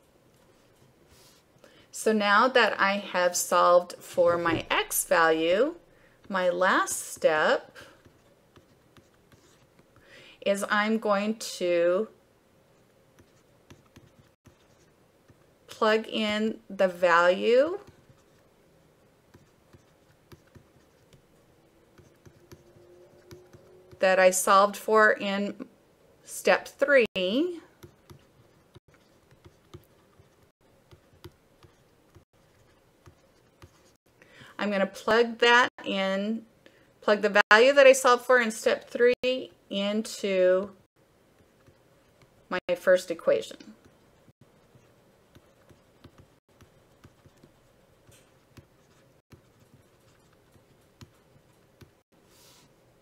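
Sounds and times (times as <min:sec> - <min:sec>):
faint steady hum: 0:00.0 - 0:37.2
stylus tapping on tablet: 0:28.9 - 0:33.9, 0:45.3 - 0:52.0
stylus tapping on a tablet: 0:45.3 - 0:47.5.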